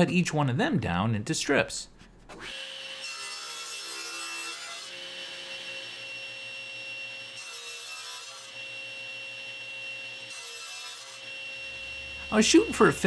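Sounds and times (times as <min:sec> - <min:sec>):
saw blade cutting wood: 0:02.3 - 0:13.0
table saw whine: 0:02.3 - 0:13.0.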